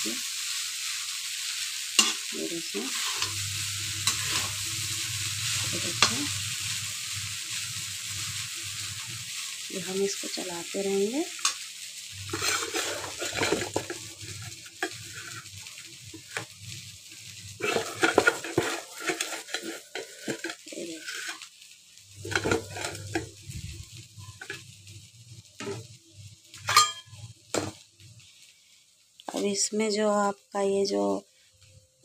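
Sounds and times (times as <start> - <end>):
light frying sizzle: 0.0 - 32.0
spatula scraping metal pan: 2.9 - 3.4, 4.0 - 4.6, 12.3 - 15.5, 17.6 - 21.4, 22.2 - 23.2.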